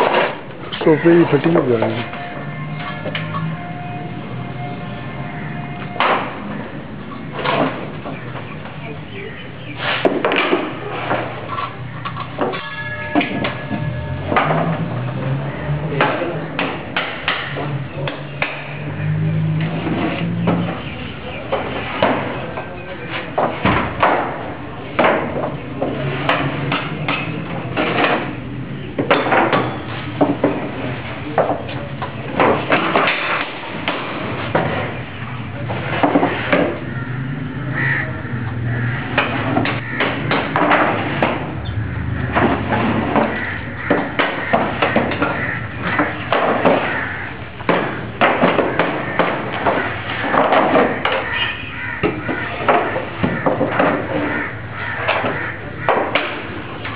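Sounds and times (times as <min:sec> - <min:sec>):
boards clattering: 0:00.0 - 0:03.9, 0:05.4 - 0:08.8, 0:09.7 - 0:56.9.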